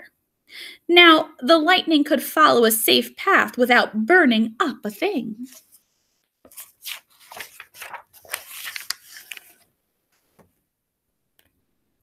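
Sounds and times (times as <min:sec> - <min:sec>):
paper page rustling: 0:04.9 - 0:10.5.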